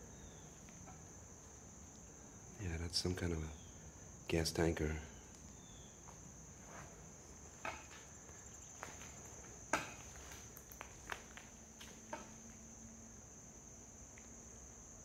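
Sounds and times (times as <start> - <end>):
insects chorus: 0.0 - 15.0
footsteps on rubble: 7.8 - 12.0.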